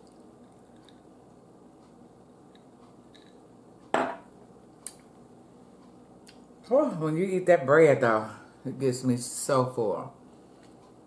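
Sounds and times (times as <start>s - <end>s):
glass set down on table: 3.9s - 4.2s.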